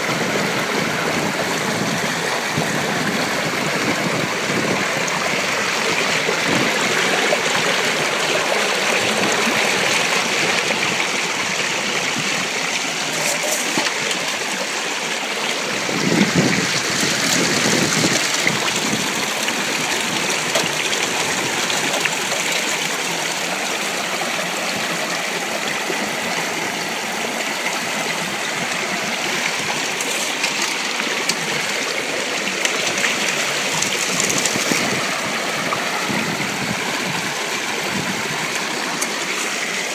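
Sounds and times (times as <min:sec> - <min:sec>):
water rushing through sluice box: 0:00.0 - 0:39.9.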